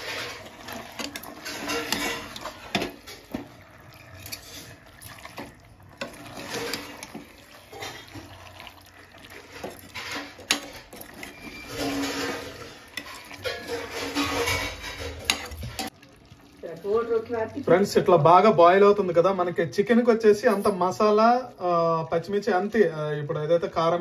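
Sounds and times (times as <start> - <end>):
metal spoon scraping steel pot: 0.0 - 8.6, 9.2 - 15.9
curry sloshing: 0.0 - 18.1.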